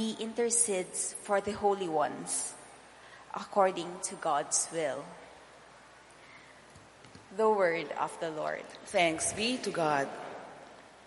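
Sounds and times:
steady low hiss: 0.0s - 11.0s
person reading aloud: 3.4s - 5.1s, 7.3s - 10.3s.

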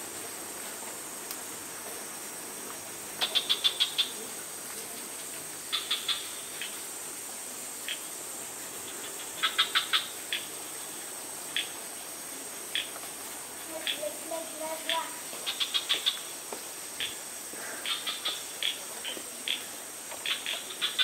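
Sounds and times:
steady high hiss: 0.0s - 21.0s
animal chirping: 3.2s - 4.2s, 5.7s - 6.8s, 14.9s - 16.3s, 17.8s - 21.0s.

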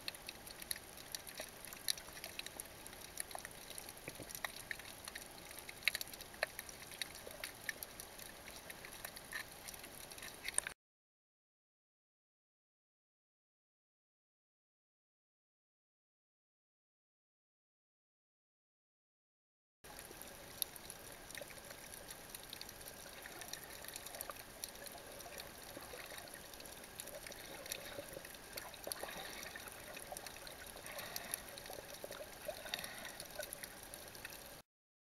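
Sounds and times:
underwater hiss with crackles: 0.0s - 10.7s, 19.9s - 34.6s.

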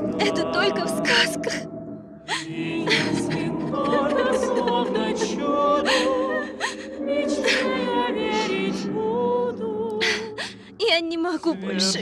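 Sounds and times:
wordless women's choir singing: 0.0s - 12.0s
woman crying sobs: 2.3s - 7.8s, 10.0s - 10.9s.

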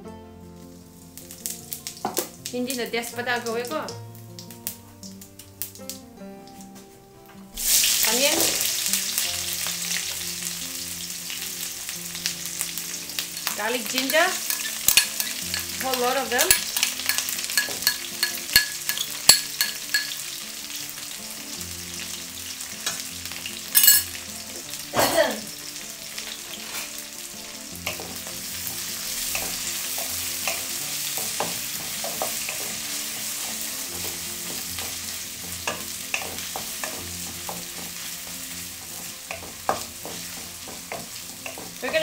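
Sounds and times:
vegetables sizzling in hot oil: 0.0s - 6.8s, 7.5s - 42.0s
spatula scraping and tapping pan: 13.2s - 20.2s, 27.8s - 42.0s.

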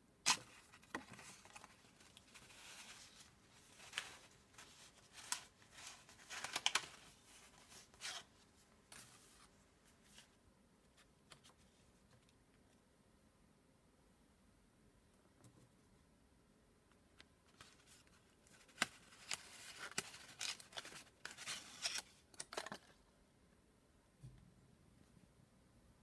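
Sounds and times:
paper and card rustling: 0.3s - 11.8s, 17.5s - 23.0s.

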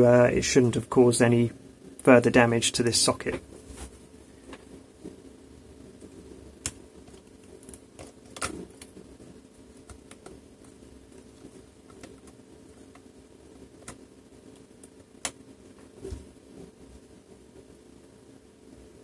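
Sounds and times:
small parts clicking and tapping: 9.8s - 13.1s.

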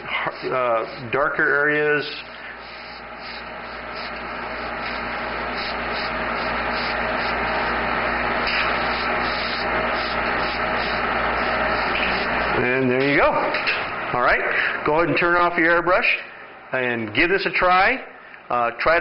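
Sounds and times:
airbrush hissing: 0.0s - 13.4s.

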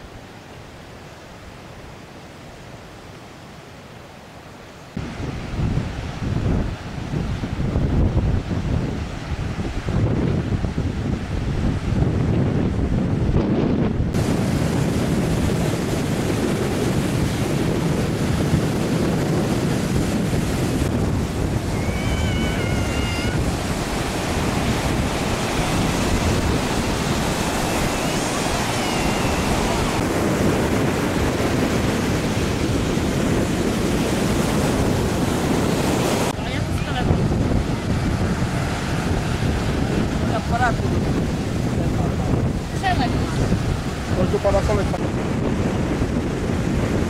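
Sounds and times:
surf breaking on beach: 4.9s - 47.0s
wind buffeting microphone: 4.9s - 47.0s.

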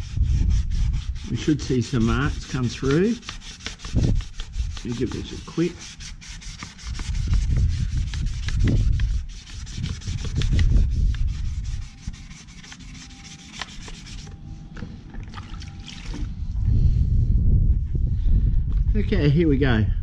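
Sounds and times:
wet sandpaper rubbing plastic: 0.0s - 14.3s.

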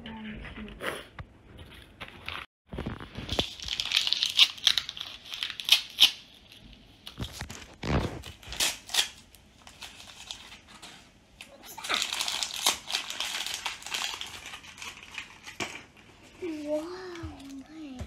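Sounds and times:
plastic wrapper crinkling and tearing: 2.2s - 10.9s, 11.7s - 15.8s.

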